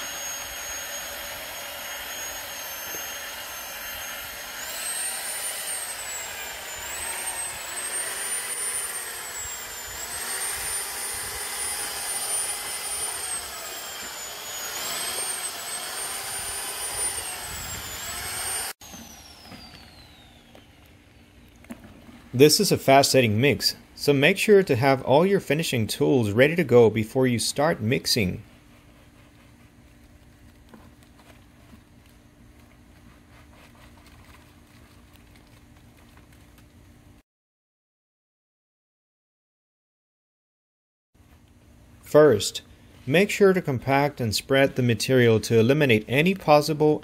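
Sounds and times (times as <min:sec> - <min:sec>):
electric drill motor whine: 0:00.0 - 0:21.8.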